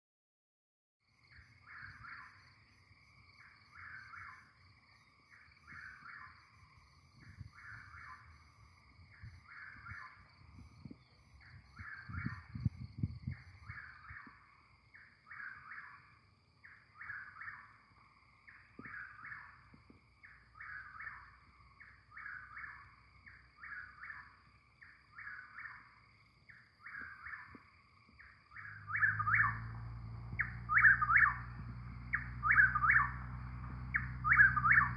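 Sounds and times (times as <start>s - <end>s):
bird singing: 1.1s - 34.9s
low rumbles: 28.7s - 34.9s.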